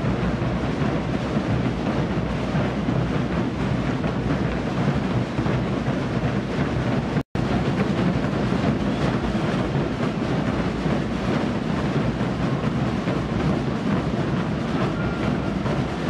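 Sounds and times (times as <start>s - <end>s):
bass drums pounding: 0.0s - 16.0s.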